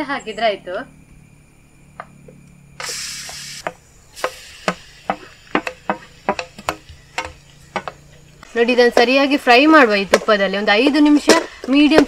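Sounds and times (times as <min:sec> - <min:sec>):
food sizzling in hot oil: 0:02.8 - 0:06.9.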